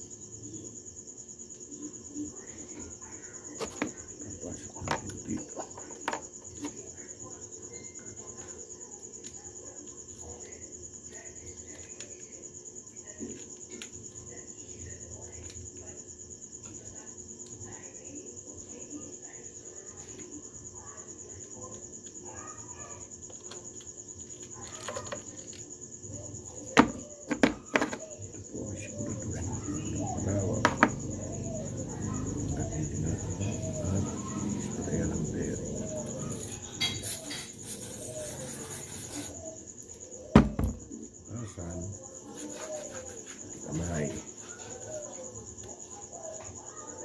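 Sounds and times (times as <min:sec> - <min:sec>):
cricket chirping: 0:00.0 - 0:47.0
high-pitched insect trill: 0:00.0 - 0:47.0
hiss: 0:36.8 - 0:39.5.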